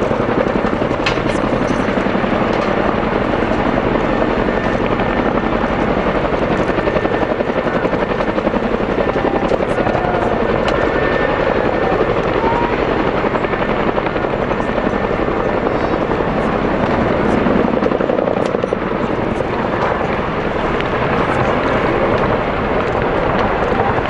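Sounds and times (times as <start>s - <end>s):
helicopter rotor blades chopping: 0.0s - 24.0s.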